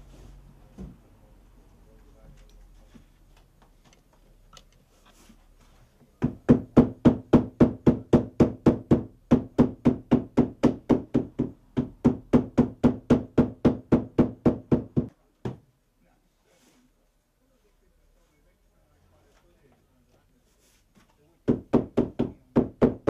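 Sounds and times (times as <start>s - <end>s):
hammer knocking on book spine: 6.2s - 15.6s.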